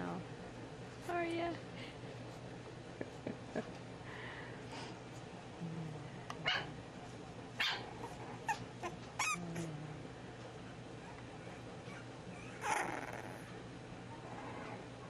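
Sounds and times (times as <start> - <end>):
puppy low growling: 5.5 - 7.1, 7.8 - 15.0
puppies yipping and barking: 7.6 - 9.4
puppy high wavering squeal: 9.2 - 9.4.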